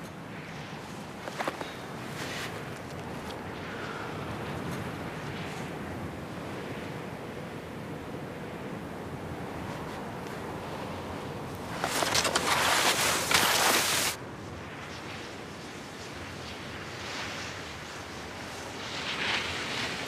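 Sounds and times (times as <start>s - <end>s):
wind hiss: 0.0s - 20.0s
skis scraping over snow: 0.9s - 3.4s, 11.6s - 14.2s.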